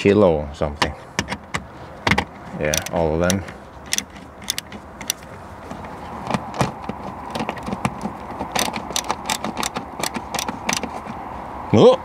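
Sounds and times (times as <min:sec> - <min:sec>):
ratcheting driver clicking: 0:02.7 - 0:05.4, 0:07.3 - 0:11.2.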